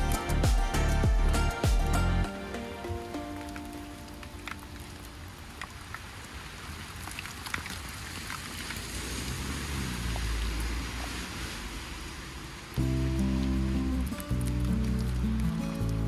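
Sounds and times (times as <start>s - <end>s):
steady rain: 0.0s - 16.0s
drops ticking: 12.8s - 16.0s.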